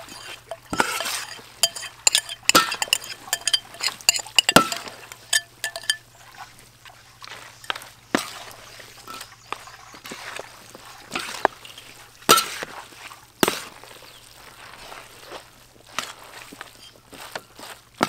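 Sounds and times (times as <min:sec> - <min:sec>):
metal utensils clinking on dishes: 0:00.0 - 0:06.4, 0:16.7 - 0:17.0.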